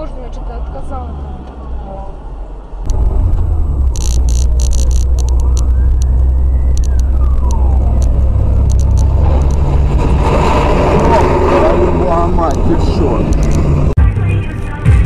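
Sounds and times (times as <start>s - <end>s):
car road and engine rumble: 0.0s - 15.0s
short clicks and crackles: 3.8s - 9.8s, 12.5s - 13.7s.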